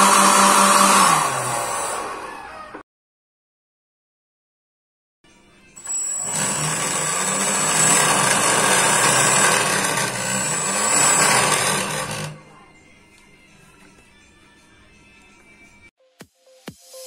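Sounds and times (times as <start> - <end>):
electric fan engine whining: 0.0 - 2.8, 5.8 - 12.4.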